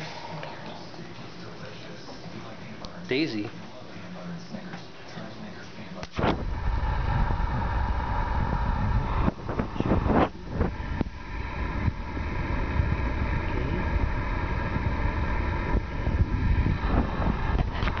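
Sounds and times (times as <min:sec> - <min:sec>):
low rumble with faint hum: 0:05.4 - 0:18.0.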